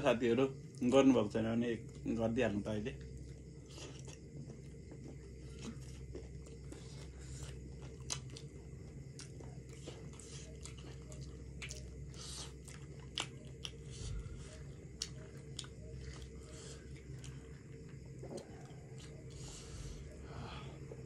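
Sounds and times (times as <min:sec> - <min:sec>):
steady low hum: 0:00.0 - 0:21.0
chewing and mouth smacks: 0:03.0 - 0:19.4.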